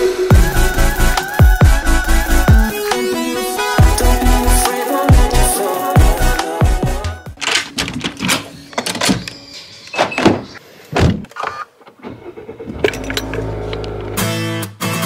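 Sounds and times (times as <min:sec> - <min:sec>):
door handle and latch clicking: 0:07.4 - 0:09.4
car engine starting and humming: 0:11.9 - 0:14.4.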